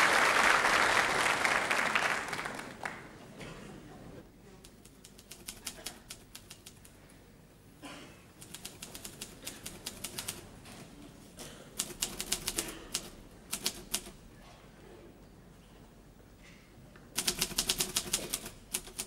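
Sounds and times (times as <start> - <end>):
typewriter keys striking: 4.8 - 6.8, 8.4 - 10.5, 11.8 - 14.2, 17.2 - 19.0.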